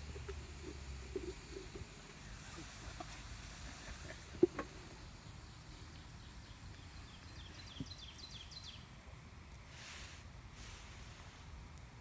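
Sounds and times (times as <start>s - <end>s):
faint outdoor ambience: 0.0s - 12.0s
bird chirping: 3.8s - 8.9s.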